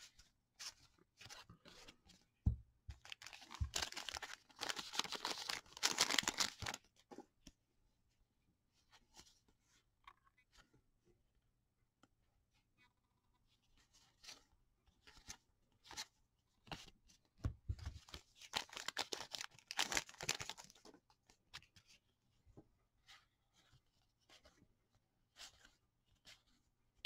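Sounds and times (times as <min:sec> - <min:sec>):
pack wrapper crinkling: 0:03.0 - 0:06.8, 0:18.5 - 0:20.8.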